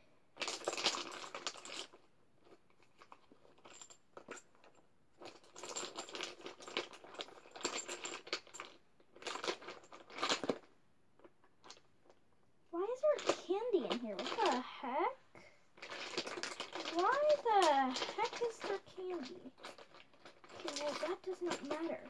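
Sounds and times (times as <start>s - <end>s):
small hard objects rattling: 13.1s - 14.9s, 15.8s - 22.0s.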